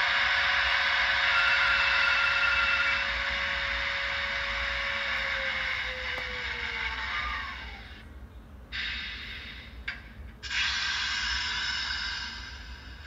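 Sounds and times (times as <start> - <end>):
model locomotive running: 0.0 - 8.1
bursts of hiss: 10.4 - 12.8.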